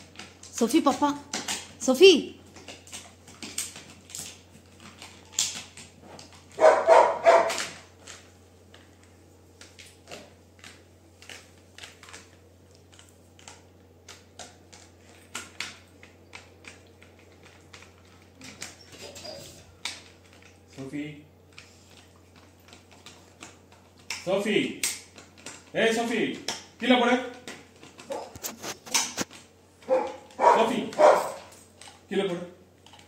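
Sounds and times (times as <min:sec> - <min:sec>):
dog chewing plastic toy: 0:02.4 - 0:20.8, 0:21.4 - 0:33.0
dog vocal sound: 0:27.9 - 0:29.0, 0:29.8 - 0:31.6.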